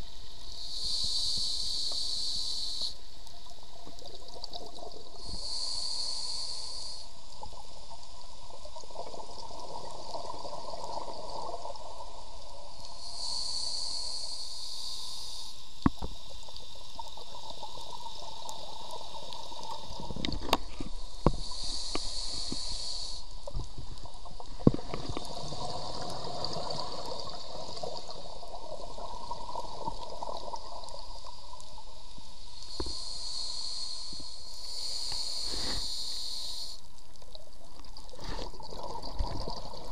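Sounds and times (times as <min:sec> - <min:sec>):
regulator inhalation hiss: 0:00.2 - 0:03.8, 0:05.0 - 0:07.8, 0:10.2 - 0:23.6, 0:32.2 - 0:36.9.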